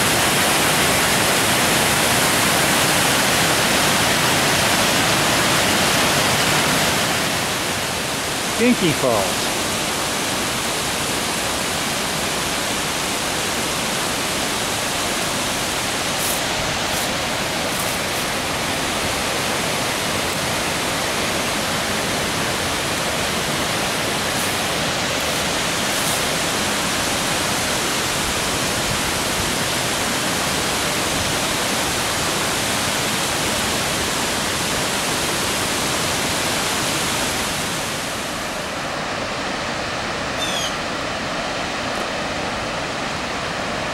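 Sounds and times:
waterfall rushing: 0:00.0 - 0:43.9.

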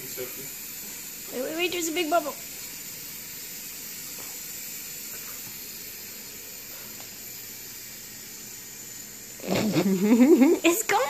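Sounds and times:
room noise hiss: 0:00.0 - 0:11.0.

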